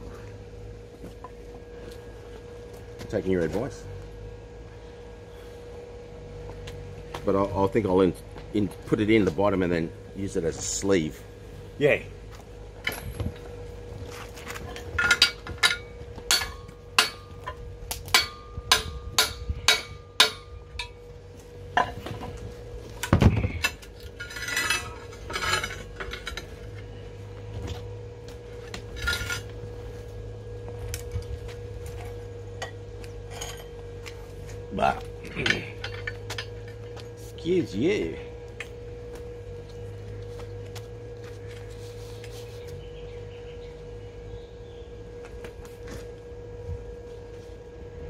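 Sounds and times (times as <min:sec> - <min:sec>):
steady hum: 0:00.0 - 0:48.0
metal parts clinking: 0:23.5 - 0:26.8, 0:35.2 - 0:36.8.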